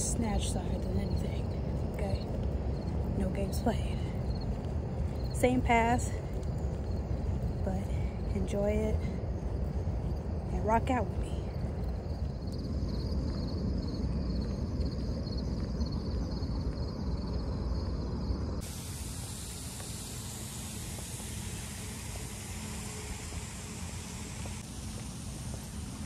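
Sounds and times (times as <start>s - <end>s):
faint pulsing high buzz: 0.0s - 26.0s
wind rumbling on microphone: 0.0s - 26.0s
steady hiss: 18.6s - 26.0s.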